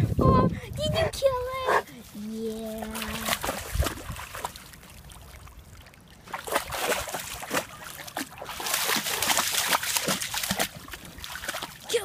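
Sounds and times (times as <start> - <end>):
puppy splashing in water: 2.5 - 12.0.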